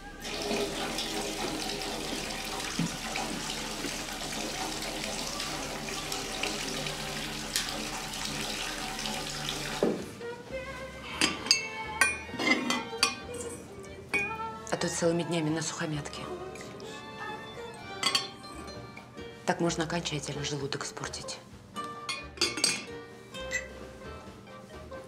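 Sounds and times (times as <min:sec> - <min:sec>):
background music: 0:00.0 - 0:25.0
tap water running into basin: 0:00.2 - 0:10.1
dishes and cutlery clinking: 0:11.1 - 0:14.5, 0:17.9 - 0:19.1, 0:21.8 - 0:23.8.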